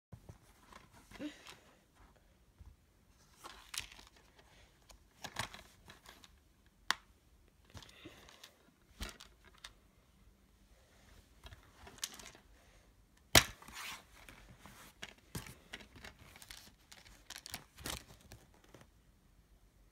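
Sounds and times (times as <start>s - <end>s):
plastic cases crinkling and clicking: 3.2s - 9.8s, 11.4s - 12.5s, 13.2s - 18.9s.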